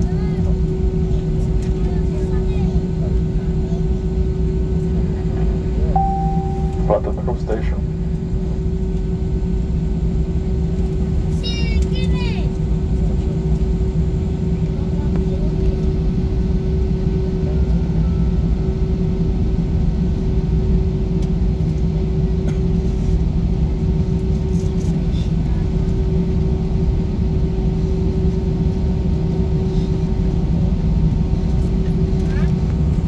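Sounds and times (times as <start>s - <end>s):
airplane cabin rumble: 0.0s - 33.0s
low hum: 6.0s - 8.2s.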